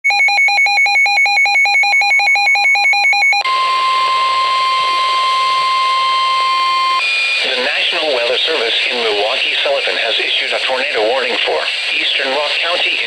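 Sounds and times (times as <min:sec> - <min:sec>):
steady warning alarm tone: 0:00.1 - 0:08.6
radio hiss: 0:07.2 - 0:13.0.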